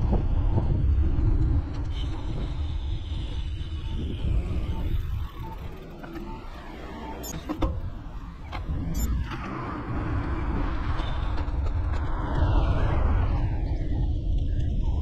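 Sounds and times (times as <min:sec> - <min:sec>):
wind buffeting microphone: 0:00.0 - 0:06.0, 0:07.6 - 0:15.0.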